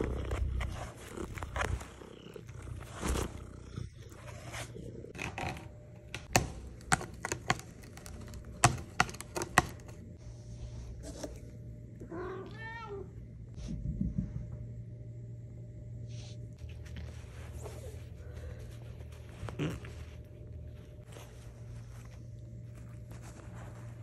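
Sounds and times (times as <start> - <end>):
cat purring: 0.0 - 5.8, 17.4 - 24.0.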